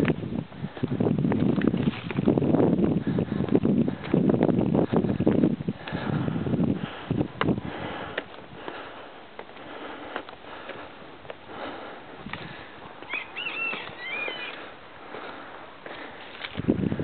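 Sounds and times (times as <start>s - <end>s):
footsteps on rocky ground: 0.0s - 6.3s, 7.1s - 17.0s.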